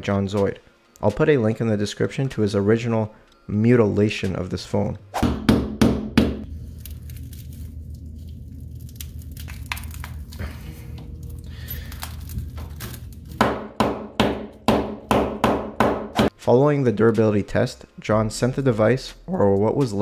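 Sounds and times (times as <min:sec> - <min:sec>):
low hum: 0:06.4 - 0:13.4.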